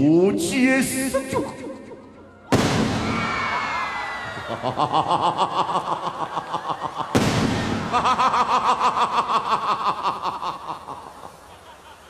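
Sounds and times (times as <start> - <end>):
loud stage-effect blast: 2.5 - 3.8, 7.2 - 8.0.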